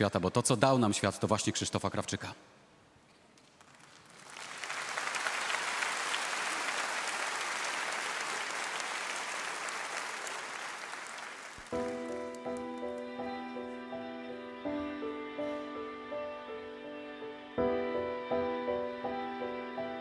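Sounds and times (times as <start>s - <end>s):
large audience applauding: 3.4s - 13.2s
music with sustained notes: 11.7s - 20.0s.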